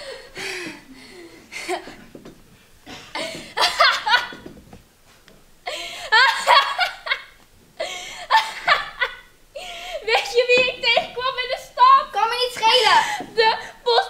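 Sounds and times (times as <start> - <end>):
girl laughing: 3.2 - 4.5, 5.7 - 14.0.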